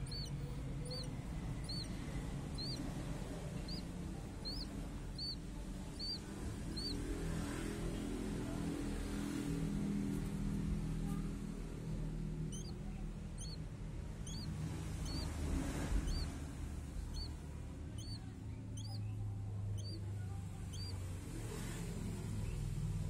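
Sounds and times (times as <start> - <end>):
bird chick chirping: 0.0 - 9.1, 12.4 - 21.1.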